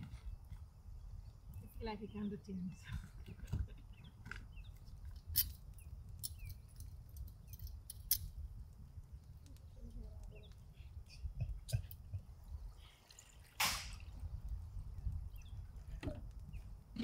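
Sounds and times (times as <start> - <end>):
faint bird chirps: 9.5 - 11.9.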